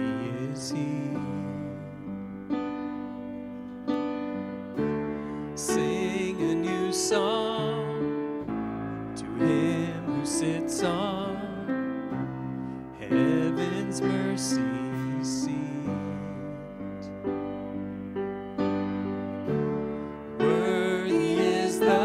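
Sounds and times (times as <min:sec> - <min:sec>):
man singing with vibrato: 0:00.0 - 0:02.2, 0:05.6 - 0:08.4, 0:09.2 - 0:12.1, 0:13.0 - 0:17.1, 0:20.4 - 0:22.0
piano or keyboard: 0:00.0 - 0:22.0.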